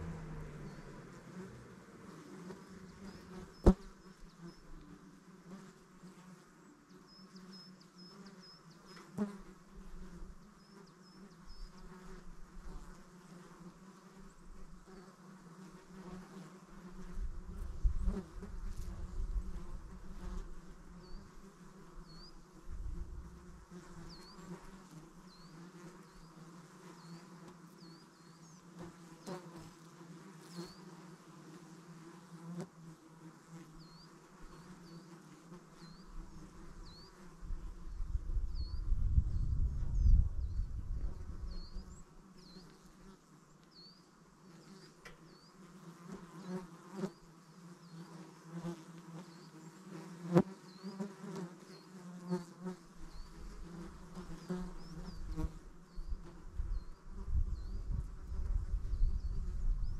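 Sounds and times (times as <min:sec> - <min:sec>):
low rumble: 0:00.0 - 0:02.1
insects buzzing: 0:00.0 - 0:59.9.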